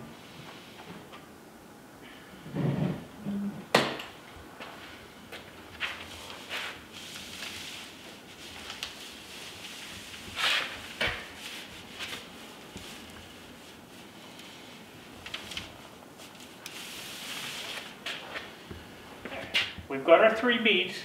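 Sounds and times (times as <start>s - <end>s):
papery rustling and rubbing: 5.7s - 18.6s.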